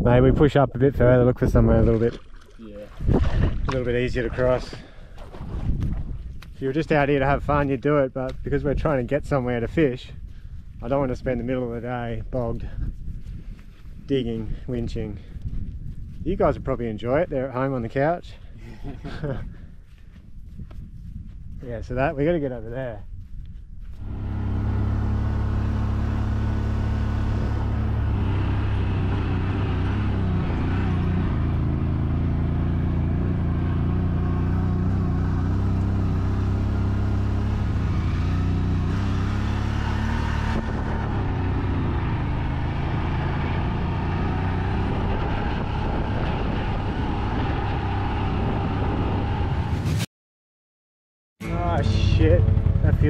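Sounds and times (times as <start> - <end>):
vehicle engine running: 23.9 - 49.1, 51.4 - 53.0.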